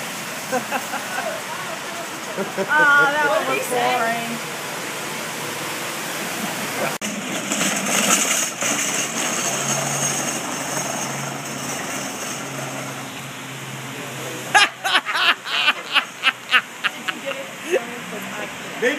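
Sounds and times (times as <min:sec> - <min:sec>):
rain on wet pavement: 0:00.0 - 0:13.9, 0:16.5 - 0:18.9
person laughing: 0:00.5 - 0:03.8, 0:14.5 - 0:17.8.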